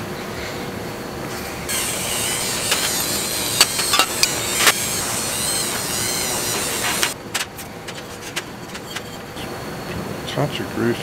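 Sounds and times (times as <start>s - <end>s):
rotary tool high-pitched whine: 1.3s - 9.9s.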